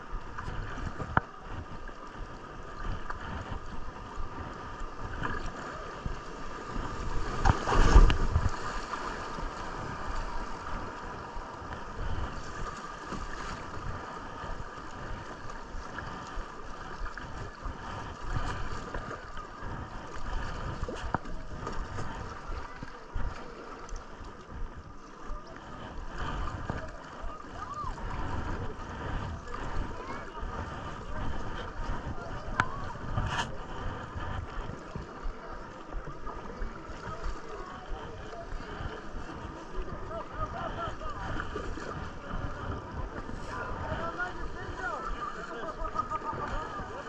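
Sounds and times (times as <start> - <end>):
wind noise: 0.0 - 23.4, 25.8 - 35.2, 36.6 - 47.0
river water splashing: 0.0 - 47.0.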